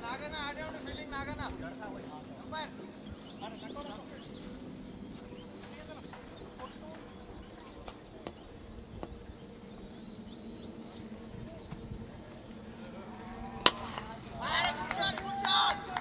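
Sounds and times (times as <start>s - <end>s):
insects trilling: 0.0s - 16.0s
cricket bat hitting ball: 13.6s - 15.2s.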